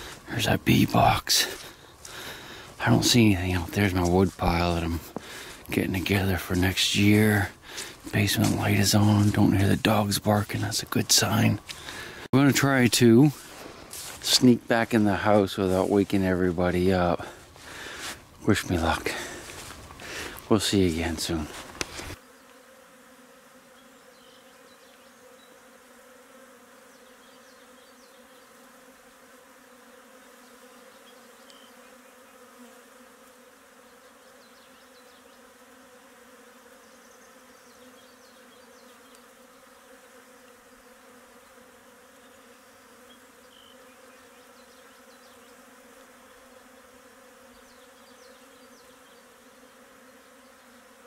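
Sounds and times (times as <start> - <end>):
faint buzzing hum: 0.0 - 51.0
faint high ticks: 31.4 - 31.6.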